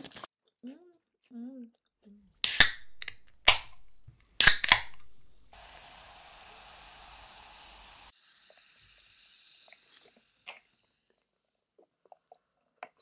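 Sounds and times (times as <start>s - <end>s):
can snapping open with hiss: 2.4s - 3.8s, 4.4s - 5.2s
carbonation fizzing: 5.5s - 13.0s
cola pouring over ice: 5.6s - 12.8s.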